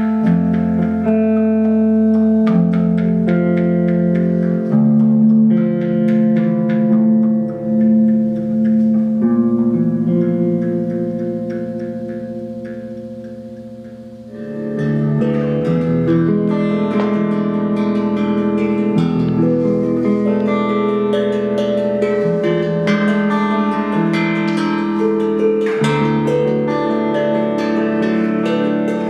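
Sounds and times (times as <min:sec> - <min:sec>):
electric guitar: 0:00.0 - 0:29.0
steel tongue drum ringing: 0:00.0 - 0:29.0.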